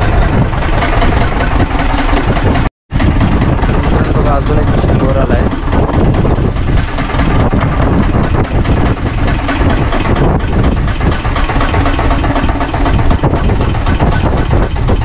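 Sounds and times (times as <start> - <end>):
boat engine idling: 0.0 - 15.0.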